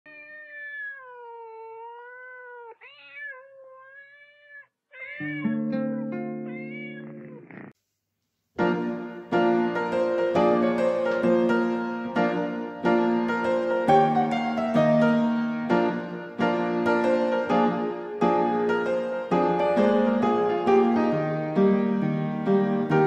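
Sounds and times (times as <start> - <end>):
cat meowing: 0.1 - 7.7
piano chord: 8.6 - 23.0
upbeat jazz piano music: 8.6 - 23.0.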